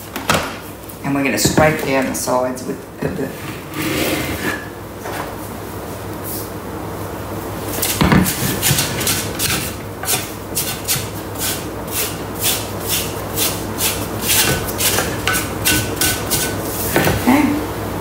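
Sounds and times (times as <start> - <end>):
spatula scraping metal bowl: 7.8 - 16.8.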